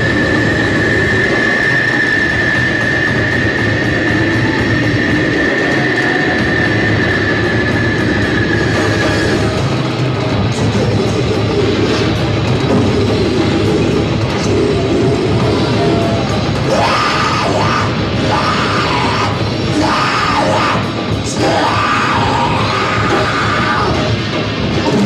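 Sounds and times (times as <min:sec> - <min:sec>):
heavy metal band playing live: 0:00.0 - 0:25.0
harsh yelled vocals: 0:10.4 - 0:25.0.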